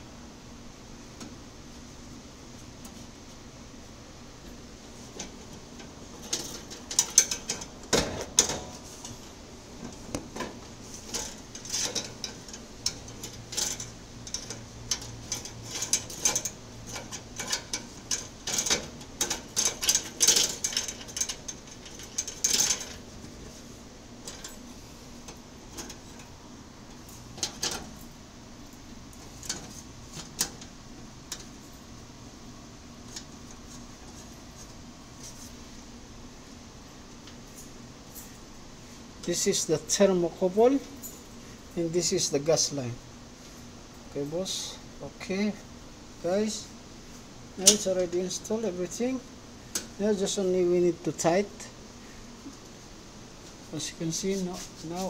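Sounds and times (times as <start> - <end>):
metal fittings clicking and scraping: 6.2 - 7.7, 10.9 - 23.1.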